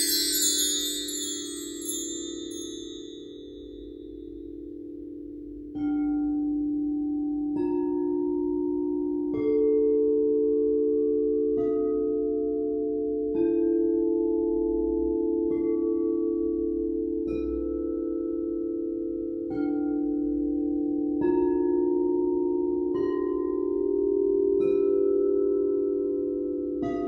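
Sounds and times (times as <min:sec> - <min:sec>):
bowls droning: 0:00.0 - 0:03.6
crystal singing bowls struck: 0:00.0 - 0:04.8.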